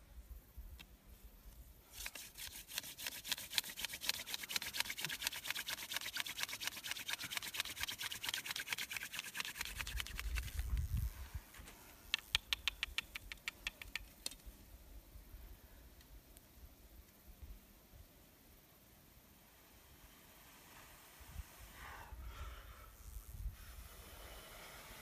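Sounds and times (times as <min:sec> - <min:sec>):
hand drill spindle scratching: 0:01.9 - 0:11.0.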